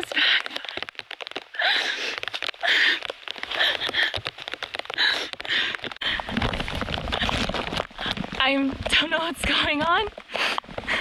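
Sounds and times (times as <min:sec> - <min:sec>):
person panting hard: 0:00.0 - 0:00.8, 0:01.5 - 0:06.6, 0:09.5 - 0:11.0
footfalls: 0:00.0 - 0:11.0
rustling: 0:00.0 - 0:11.0.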